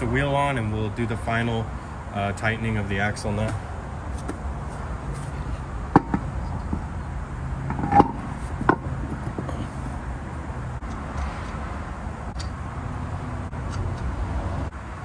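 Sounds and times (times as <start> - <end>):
wheel knocking and clanking: 5.9 - 7.0, 7.6 - 9.8.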